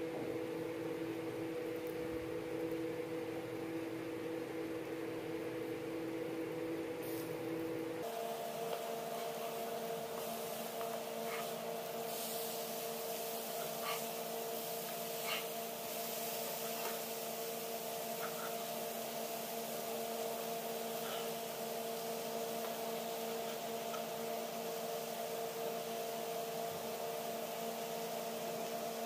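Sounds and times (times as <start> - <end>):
steady hum: 0.0 - 29.0
fish sizzling in oil: 8.5 - 26.1.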